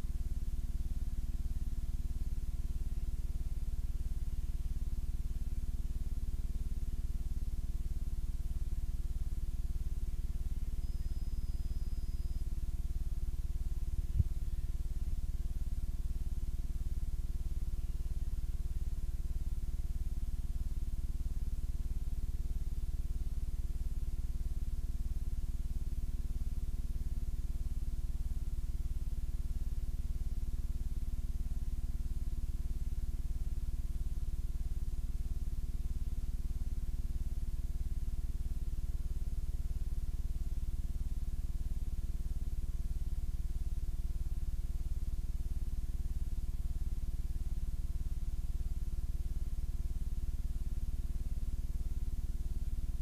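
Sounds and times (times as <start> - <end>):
videotape electrical hum: 0.0 - 34.0.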